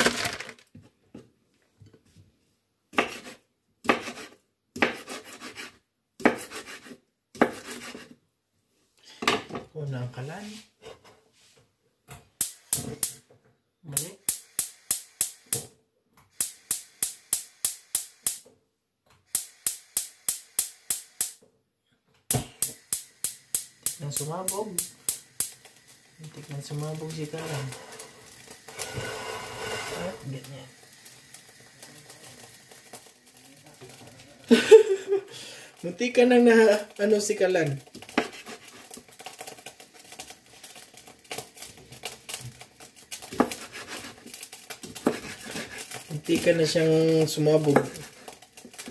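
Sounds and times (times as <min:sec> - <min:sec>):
knife chopping on wooden board: 0:02.9 - 0:08.1, 0:38.1 - 0:38.6, 0:43.3 - 0:44.0, 0:45.0 - 0:45.7
gas stove igniter clicking: 0:12.4 - 0:13.2, 0:22.6 - 0:25.6.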